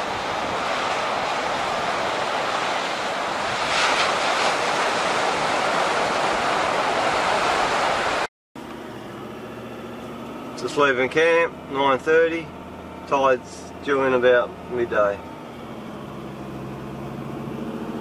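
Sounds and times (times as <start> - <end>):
waves breaking on beach: 0.0 - 8.3
engine and tyre drone in cabin: 0.0 - 18.0.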